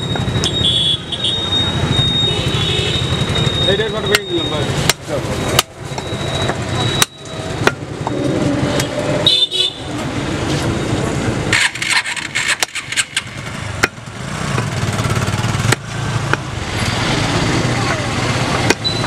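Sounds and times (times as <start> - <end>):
street traffic: 0.0 - 19.0
vehicle horn: 0.6 - 1.6, 9.2 - 9.9
cleaver chopping meat on wood: 18.6 - 18.9.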